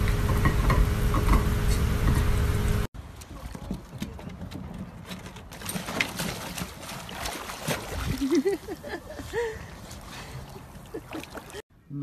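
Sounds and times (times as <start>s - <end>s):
water sloshing and splashing: 3.0s - 11.6s.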